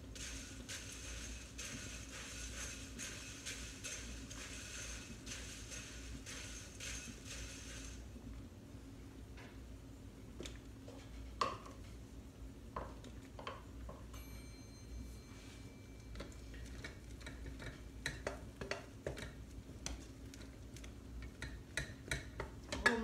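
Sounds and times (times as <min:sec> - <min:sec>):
faint low hum: 0:00.0 - 0:23.0
thin high tone: 0:14.2 - 0:16.2.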